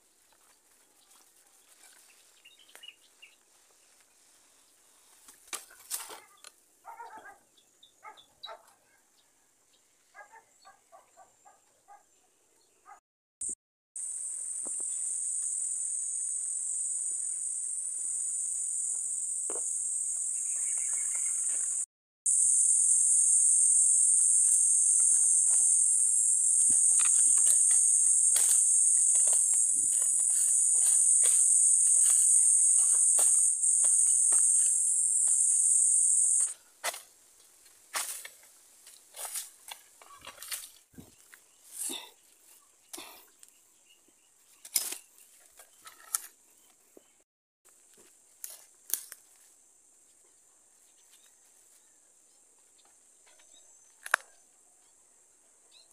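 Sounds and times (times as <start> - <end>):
high-pitched insect buzz: 13.4 - 36.5.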